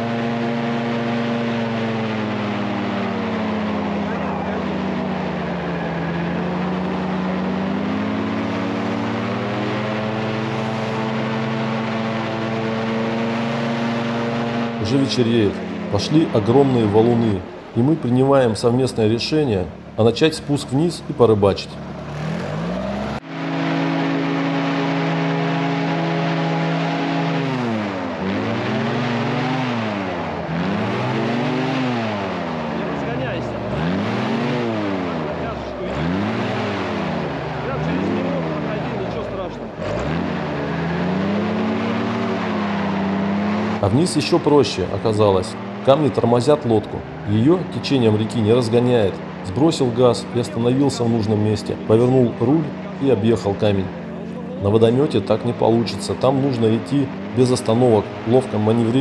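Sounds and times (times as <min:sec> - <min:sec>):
airboat engine and propeller: 0:00.0 - 0:18.1
airboat engine and propeller running: 0:00.0 - 0:59.0.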